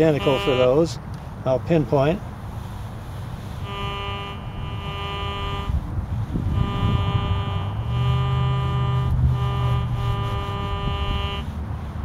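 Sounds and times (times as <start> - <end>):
metal detector buzzy tone: 0.0 - 0.8, 3.6 - 11.5.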